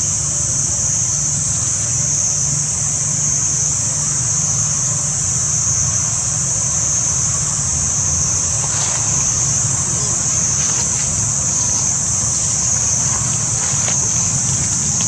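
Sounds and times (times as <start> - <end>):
high-pitched insect drone: 0.0 - 15.0
low steady rumble: 2.9 - 15.0
faint crackles: 8.4 - 15.0.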